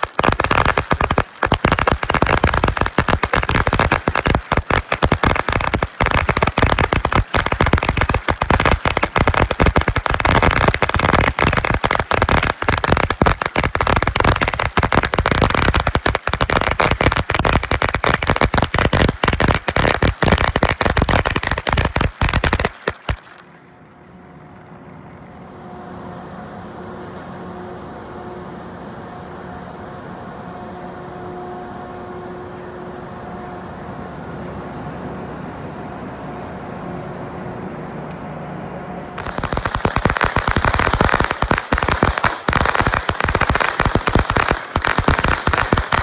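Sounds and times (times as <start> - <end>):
firecrackers banging: 0.0 - 23.6, 39.1 - 46.0
ferry mechanical hum: 23.4 - 39.8.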